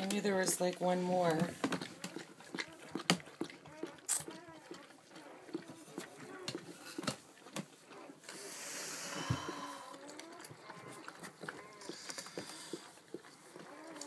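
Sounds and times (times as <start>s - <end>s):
rustling hiss: 8.3s - 9.9s.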